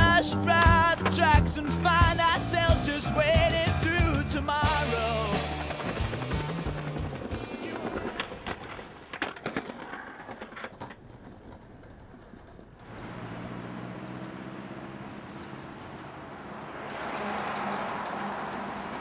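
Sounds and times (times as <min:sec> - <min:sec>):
skateboard clacking on concrete: 0:00.0 - 0:02.2, 0:04.8 - 0:12.9
street traffic: 0:00.0 - 0:09.2, 0:10.6 - 0:19.0
car engine running: 0:12.8 - 0:16.8.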